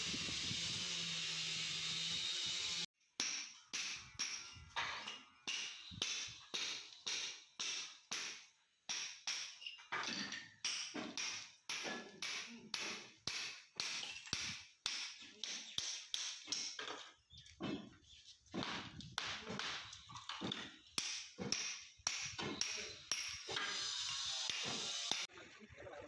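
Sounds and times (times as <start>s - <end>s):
hammer striking brick: 3.2s - 4.5s, 5.4s - 9.6s, 10.6s - 16.8s, 18.6s - 23.6s.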